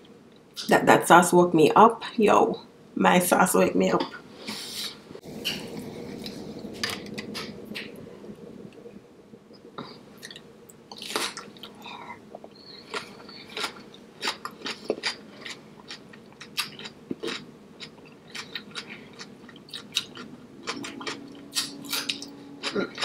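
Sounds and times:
person chewing food: 10.2s - 23.0s.

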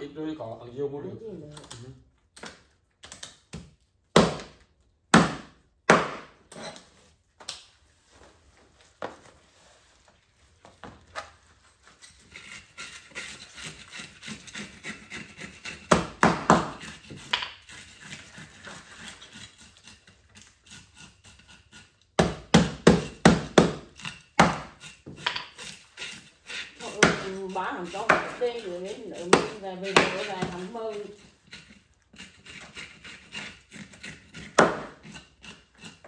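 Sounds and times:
knife chopping fish on board: 22.2s - 25.3s, 28.0s - 28.4s, 29.2s - 30.7s, 34.4s - 35.1s.

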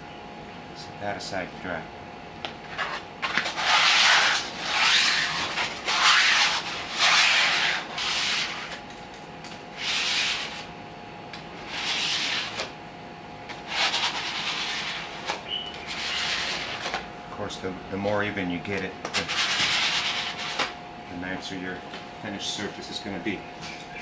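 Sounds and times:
glue spreader strokes: 3.4s - 8.7s, 13.6s - 17.0s.

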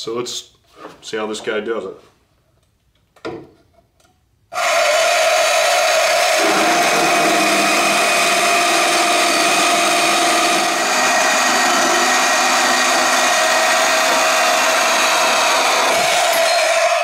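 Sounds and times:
band saw motor whine: 4.6s - 17.0s.

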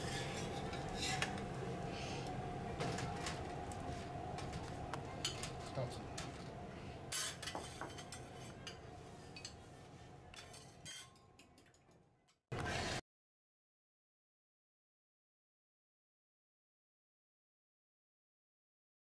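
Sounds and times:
kitchen noise hum: 0.0s - 13.0s
metal spatulas clinking on griddle: 10.4s - 11.8s.

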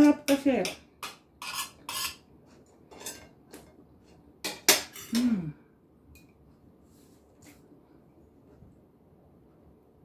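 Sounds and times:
fork and knife scraping a plate: 1.0s - 3.3s
person humming mmm: 5.1s - 5.7s.

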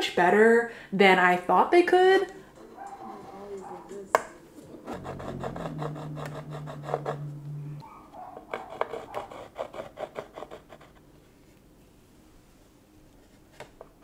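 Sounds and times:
low hum: 4.4s - 8.4s.

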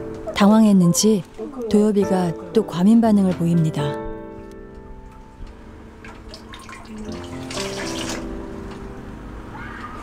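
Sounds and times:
tap water running into steel sink: 6.1s - 8.2s
dishes being rinsed: 6.1s - 8.3s.

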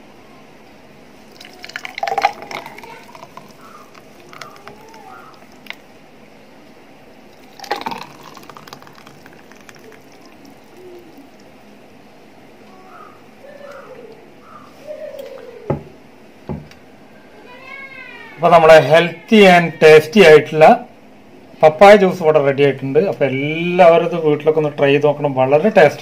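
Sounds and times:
thick juice pouring into glasses: 1.2s - 5.9s, 7.3s - 11.6s.

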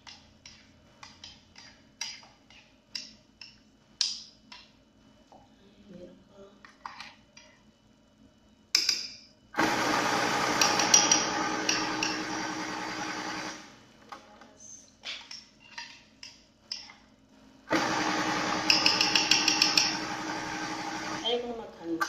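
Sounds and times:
blender running: 9.6s - 13.7s, 17.7s - 21.2s.

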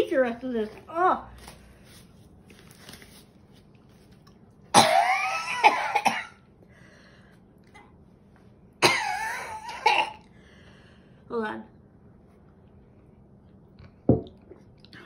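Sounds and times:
woman coughing: 4.7s - 6.4s, 8.8s - 10.2s.

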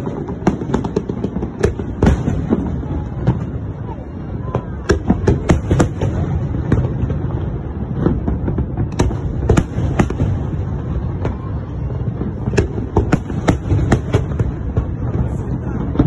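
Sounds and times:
low rumble of fireworks barrage: 0.0s - 16.0s.

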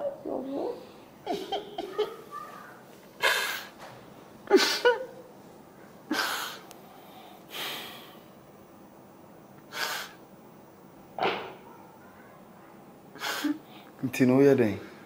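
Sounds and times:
person sniffing: 6.1s - 8.2s, 9.7s - 10.2s, 13.2s - 13.9s.

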